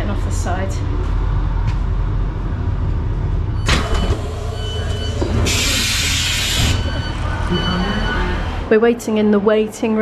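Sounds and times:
train hum: 0.0s - 10.0s
hiss of air: 5.5s - 6.7s.

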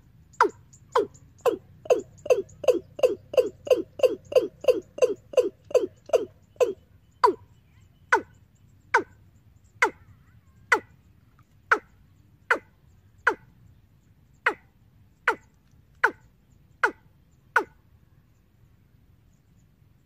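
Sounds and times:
faint low hum: 0.0s - 20.0s
bird call through speaker: 0.4s - 8.4s.

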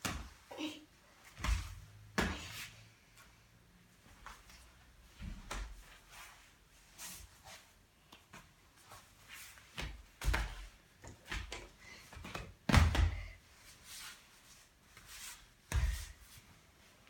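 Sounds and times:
body thumping on foam mat: 12.6s - 13.4s.

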